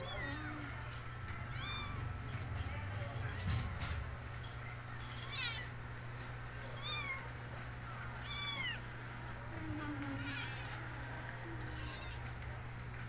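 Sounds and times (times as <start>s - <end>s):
kitten mewing: 10.1s - 10.8s, 11.7s - 12.2s.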